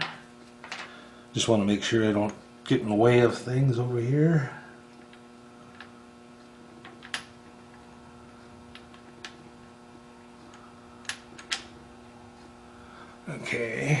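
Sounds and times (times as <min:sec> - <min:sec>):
low electrical hum: 0:00.0 - 0:14.0.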